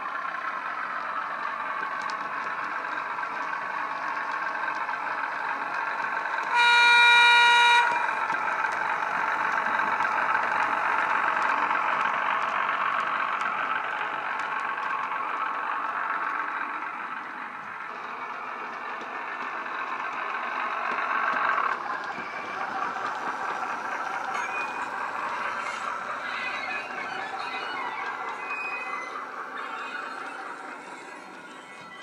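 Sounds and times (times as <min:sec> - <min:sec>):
diesel engine from small speaker: 0:00.0 - 0:32.0
train horn blast: 0:06.5 - 0:08.0.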